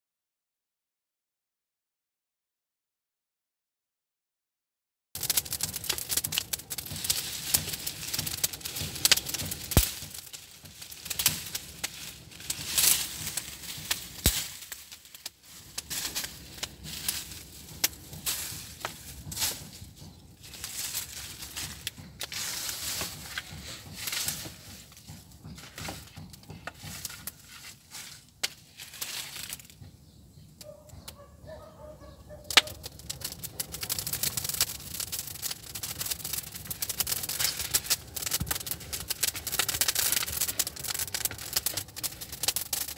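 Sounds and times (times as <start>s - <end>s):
wood fire crackling and popping: 5.2s - 42.9s.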